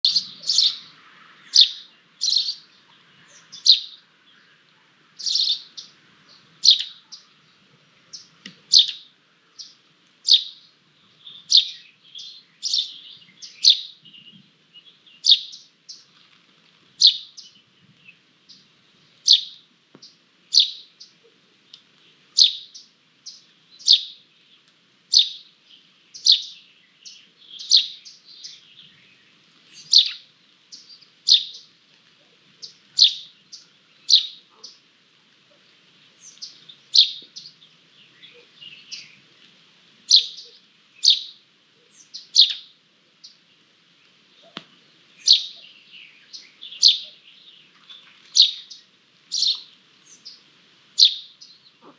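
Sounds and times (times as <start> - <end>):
bird chicks peeping: 0.0 - 0.9, 1.5 - 4.0, 5.2 - 7.5, 8.1 - 16.2, 22.4 - 31.7, 32.6 - 34.8, 35.6 - 39.4, 40.1 - 43.4, 45.2 - 51.9.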